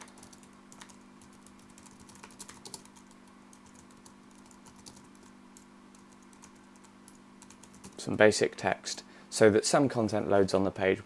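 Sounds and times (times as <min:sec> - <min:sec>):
keyboard typing clicks: 0:00.0 - 0:08.0.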